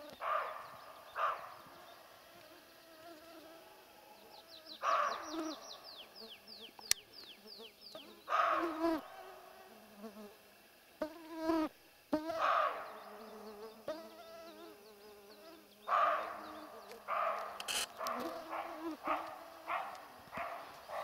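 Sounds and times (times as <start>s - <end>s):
insects buzzing: 0.0s - 21.0s
deer alarm barks: 0.2s - 1.6s, 4.8s - 5.6s, 8.3s - 9.4s, 12.3s - 13.0s, 15.9s - 21.0s.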